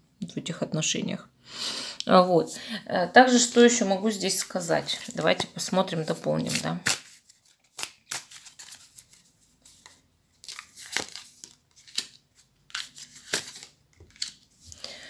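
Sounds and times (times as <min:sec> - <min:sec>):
cards sliding and tapping: 0:09.8 - 0:14.5.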